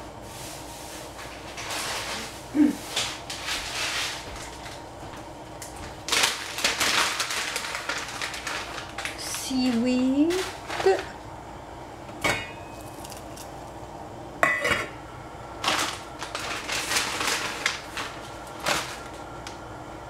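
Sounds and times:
packaging rustling and crinkling: 0:05.8 - 0:11.2, 0:15.6 - 0:19.3.

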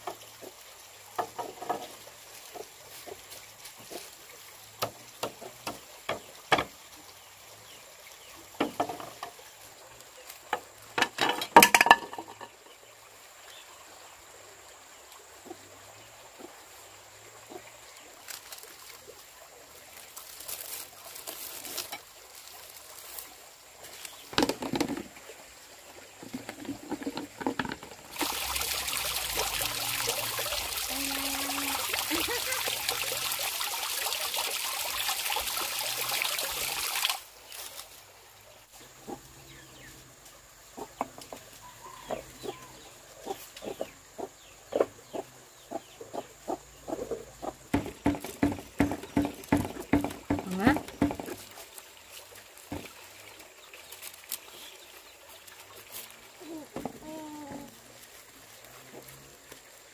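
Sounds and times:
water running: 0:00.0 - 0:12.5, 0:15.0 - 0:39.0, 0:47.2 - 0:59.9
objects being handled: 0:26.2 - 0:28.1.

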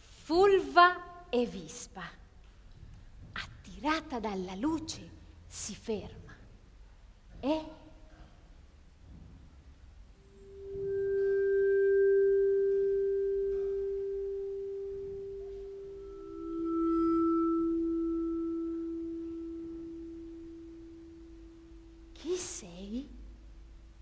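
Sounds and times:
ringing vibraphone notes: 0:10.2 - 0:22.1.

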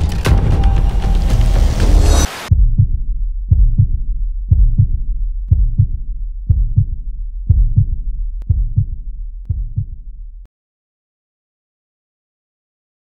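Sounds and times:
heartbeat thumps: 0:00.1 - 0:10.2.

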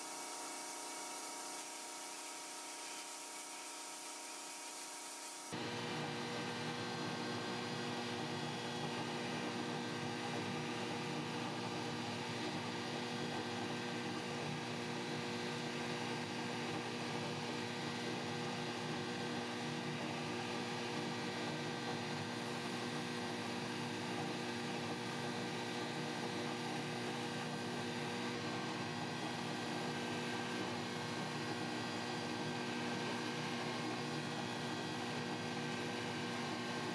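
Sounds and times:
extraction fan running: 0:19.1 - 0:36.9.

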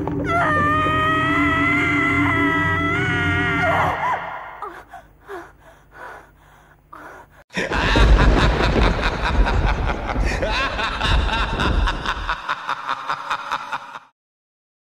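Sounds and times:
laughter: 0:07.5 - 0:14.1
deep rumble: 0:07.7 - 0:12.4.

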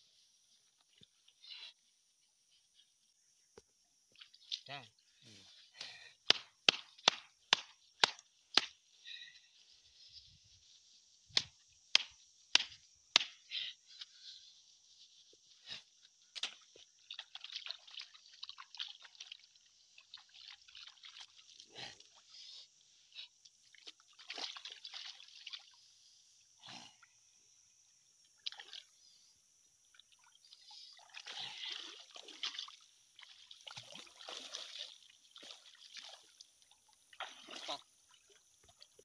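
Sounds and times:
river water splashing: 0:30.0 - 0:39.0.

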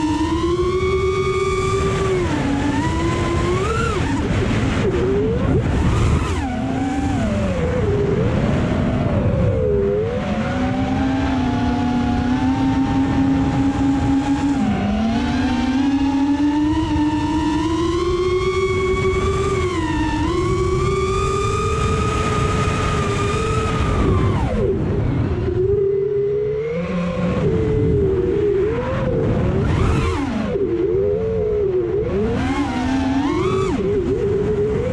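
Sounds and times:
drone motors whining: 0:00.0 - 0:34.9
wind noise: 0:00.0 - 0:34.9.

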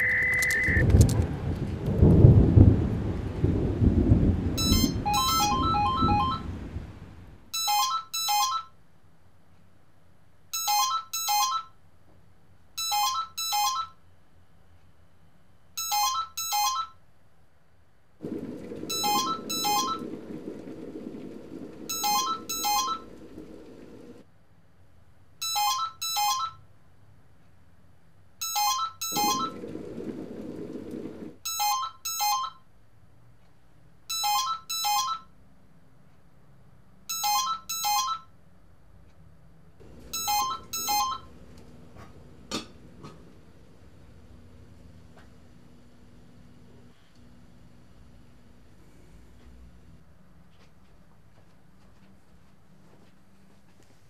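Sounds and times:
telephone ringing: 0:00.0 - 0:00.9, 0:04.6 - 0:06.6, 0:07.6 - 0:08.8, 0:10.6 - 0:11.8, 0:12.8 - 0:14.0, 0:15.8 - 0:17.0, 0:18.2 - 0:24.2, 0:25.4 - 0:26.6, 0:28.4 - 0:32.6, 0:34.1 - 0:35.3, 0:37.1 - 0:38.3, 0:39.8 - 0:41.6
thunder rumbling: 0:00.0 - 0:07.4, 0:18.2 - 0:24.2, 0:29.1 - 0:31.4, 0:39.8 - 0:46.6
low steady hum: 0:11.4 - 0:25.3, 0:38.6 - 0:50.5.

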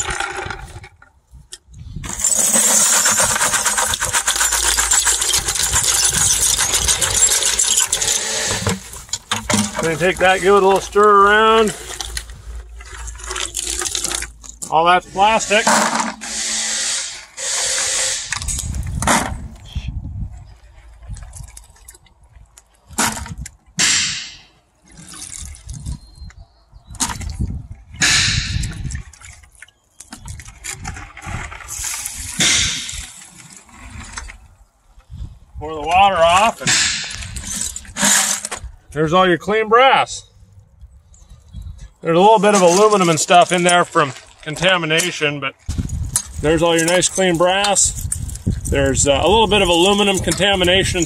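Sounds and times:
small pieces clattering into water: 0:02.1 - 0:14.7.

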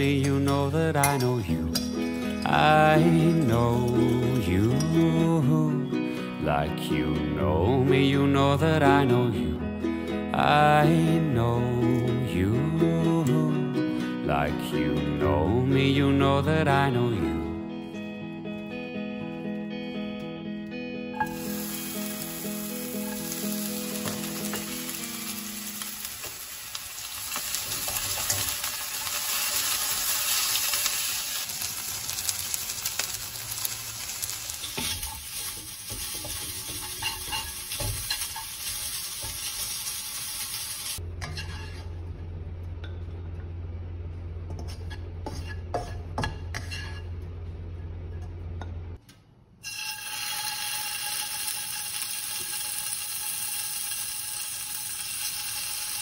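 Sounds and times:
onion and meat sizzling in wok: 0:00.0 - 0:05.2, 0:21.2 - 0:41.8, 0:49.6 - 0:56.0
steady low hum: 0:41.0 - 0:49.0.

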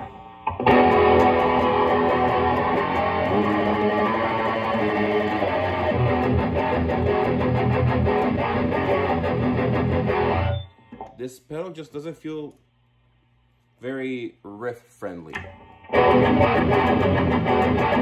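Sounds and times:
distorted electric guitar riffing: 0:00.0 - 0:10.6, 0:15.8 - 0:18.0.

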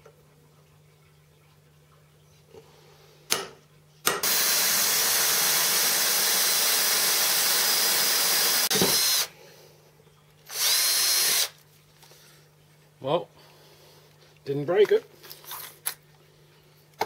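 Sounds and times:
cordless drill boring: 0:04.2 - 0:09.3, 0:10.5 - 0:11.6.

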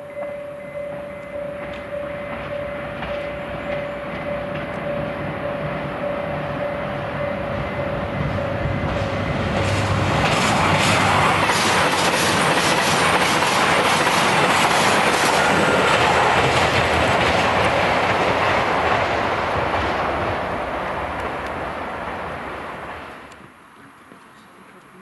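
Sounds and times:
train wheels clacking over rail joints: 0:01.6 - 0:05.0, 0:08.8 - 0:20.3.

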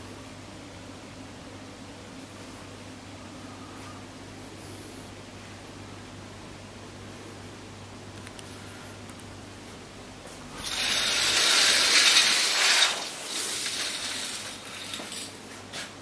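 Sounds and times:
curtain sliding on rail: 0:10.6 - 0:15.8.

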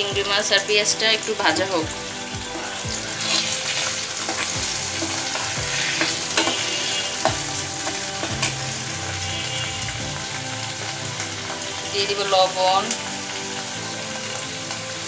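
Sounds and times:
prawns and onions sizzling: 0:00.0 - 0:15.0
metal spatula scraping a pan: 0:02.4 - 0:09.9.

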